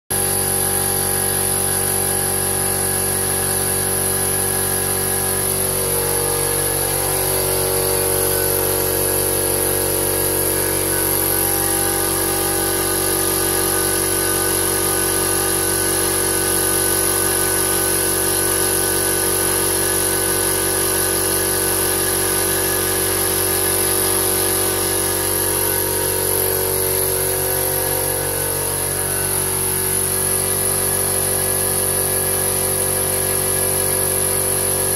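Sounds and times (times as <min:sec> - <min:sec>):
air compressor running: 0:00.1 - 0:34.9.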